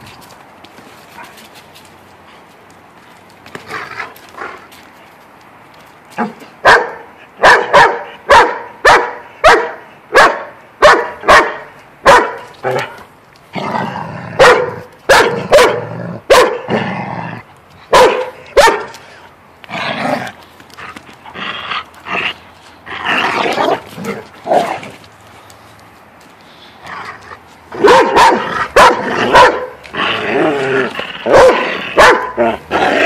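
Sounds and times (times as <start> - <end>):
dog barking: 6.6 - 12.9, 14.4 - 16.7, 17.9 - 18.9, 27.8 - 29.8, 31.3 - 32.4.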